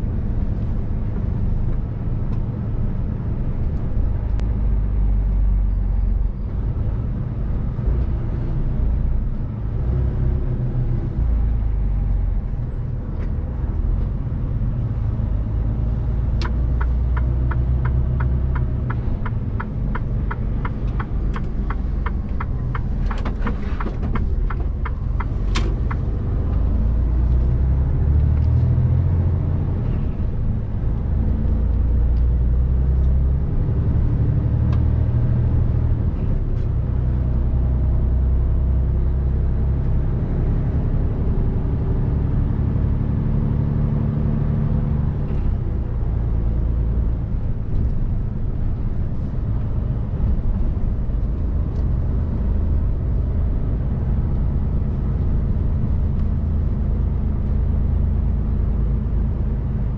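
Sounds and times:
diesel truck engine rumbling: 0.0 - 59.9
turn signal ticking: 16.0 - 26.8.

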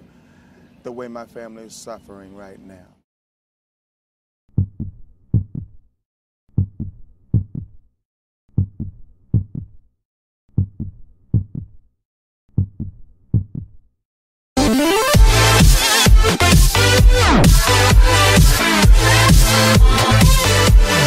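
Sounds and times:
heartbeat thumps: 4.6 - 5.8, 6.6 - 7.8, 8.6 - 9.7, 10.6 - 11.7, 12.6 - 13.7.

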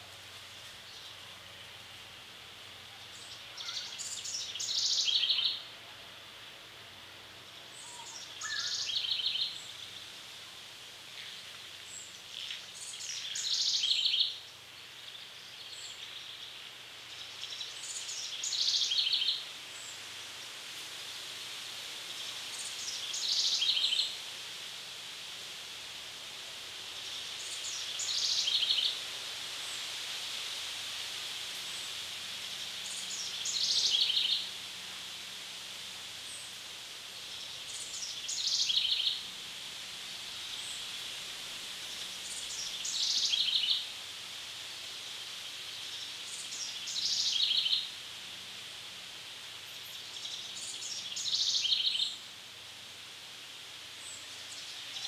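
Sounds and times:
steady high background hiss: 0.0 - 55.0
songbird singing with trill: 3.2 - 5.7, 7.6 - 9.8, 12.0 - 14.4, 17.2 - 19.4, 22.8 - 24.1, 32.8 - 34.5, 37.3 - 39.2, 42.2 - 43.8, 45.8 - 47.9, 49.7 - 52.2.

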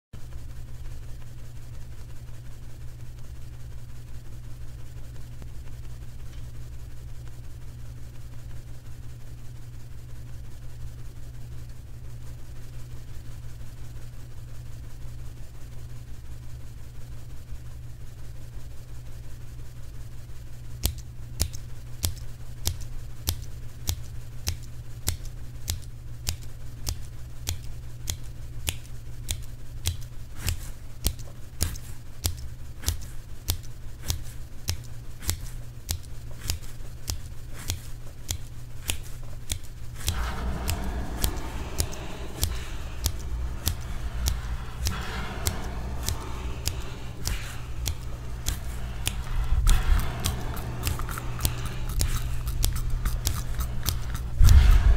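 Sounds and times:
sharp clicks: 20.8 - 54.9
low hum: 39.8 - 54.9.

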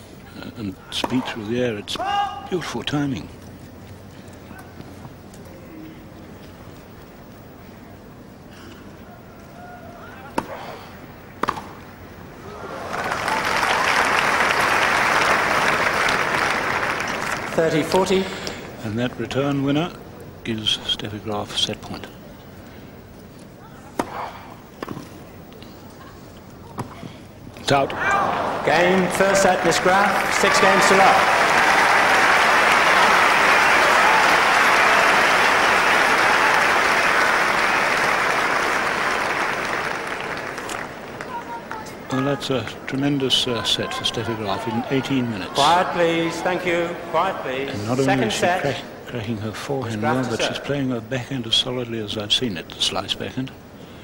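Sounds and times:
racket hitting tennis ball: 11.4 - 11.8, 24.0 - 25.0
crowd applause: 12.4 - 18.5, 27.9 - 42.3.

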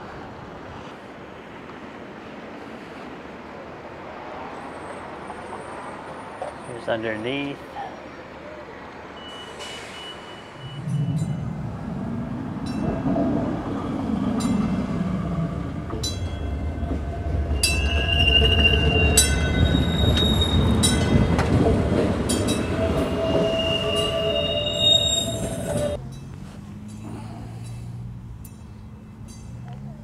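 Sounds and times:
streetcar wheels rumbling on rails: 0.0 - 30.0
high-pitched wheel squeals: 16.0 - 21.4, 22.3 - 26.0.

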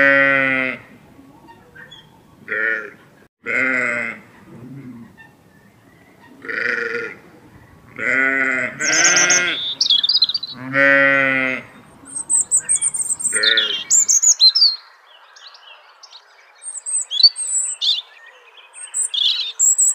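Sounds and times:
animal bleating: 0.0 - 0.9, 2.5 - 5.0, 6.4 - 7.2, 7.9 - 11.8, 13.2 - 14.0
bird chirps and trills: 1.3 - 2.4, 8.8 - 10.7, 11.7 - 19.9.

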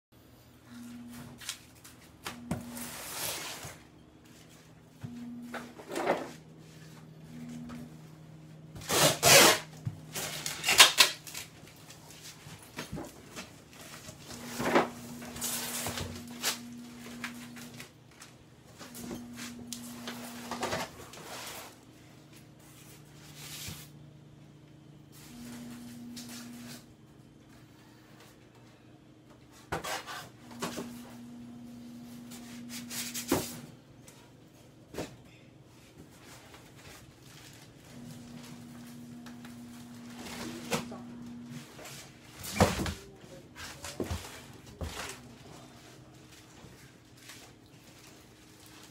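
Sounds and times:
packing tape ripping off box: 8.8 - 11.5.

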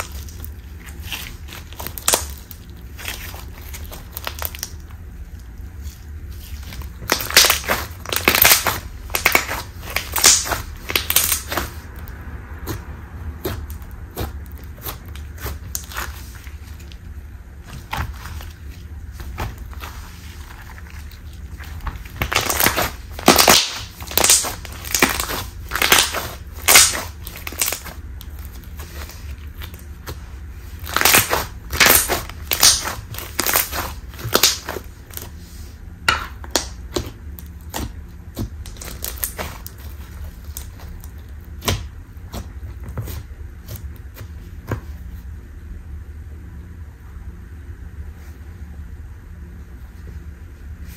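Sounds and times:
slime crackling and clicking: 0.0 - 5.5, 6.7 - 12.8, 20.9 - 30.2, 30.8 - 35.3, 36.4 - 41.8.

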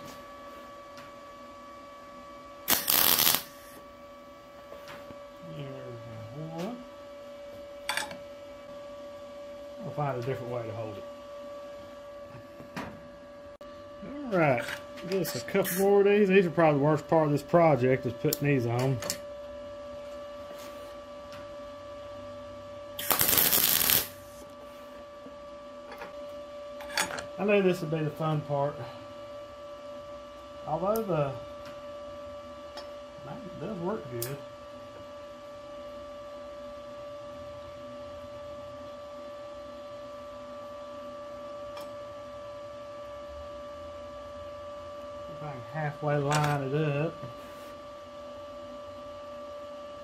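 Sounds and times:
electrical hum: 0.0 - 50.0
welding arc crackling: 2.7 - 3.8, 23.0 - 24.4.

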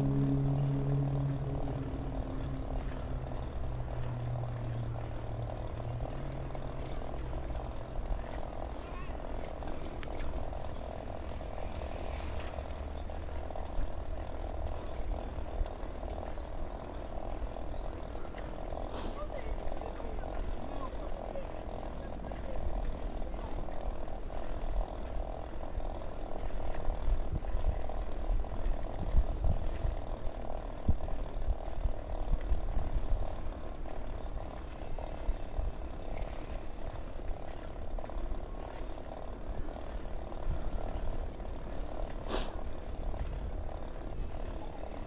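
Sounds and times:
fluttering mid-pitched drone: 0.0 - 4.3
bicycle rolling on asphalt: 0.0 - 45.0
wind rumbling on microphone: 19.6 - 42.0.

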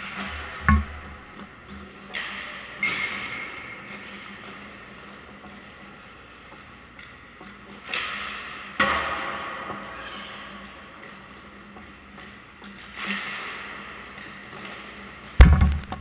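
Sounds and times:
hockey sticks hitting pucks: 7.8 - 10.2
pucks striking the boards: 15.4 - 16.0.

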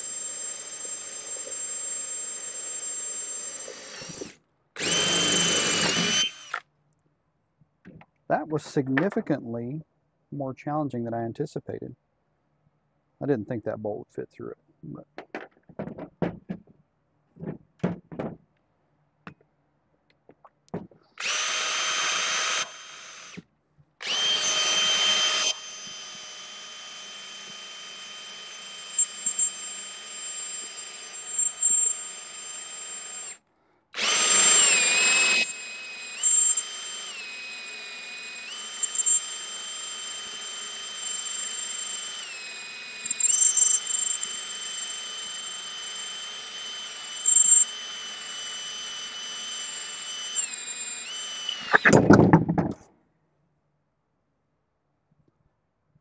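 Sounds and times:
electric drill boring metal: 0.0 - 6.6, 21.2 - 23.4, 24.0 - 33.4, 34.0 - 52.7.

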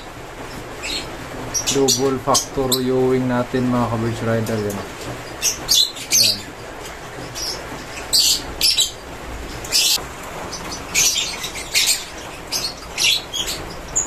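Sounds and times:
lovebirds chirping: 0.0 - 14.0.

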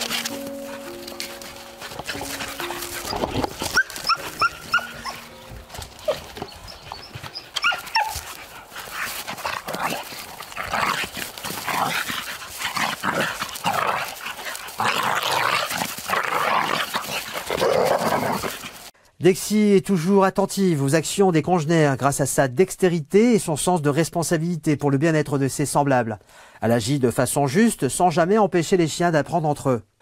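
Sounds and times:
dogs growling and snarling: 0.0 - 18.9
dog yelping: 1.8 - 8.5
dog whining: 2.1 - 8.4.

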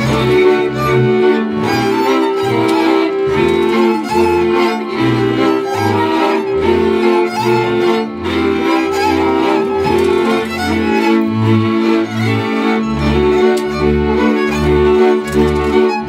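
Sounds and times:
bowed double bass: 0.0 - 16.0
fiddle melody: 0.0 - 16.0
viola chords: 0.0 - 16.0.

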